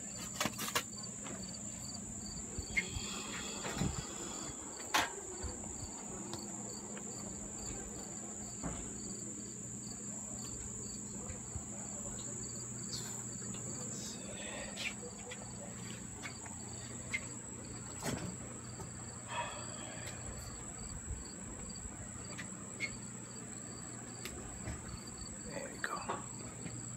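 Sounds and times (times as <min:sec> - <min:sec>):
insects chirping: 0:00.0 - 0:26.9.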